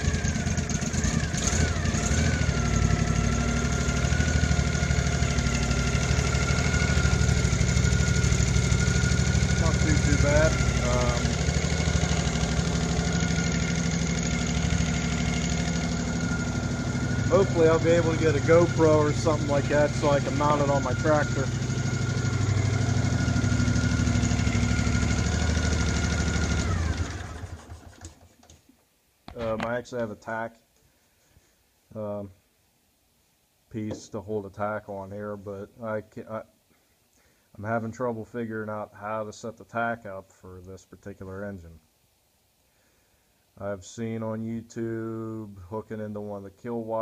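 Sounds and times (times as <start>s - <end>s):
lawn mower engine idling: 0.0s - 28.6s, 33.9s - 34.1s.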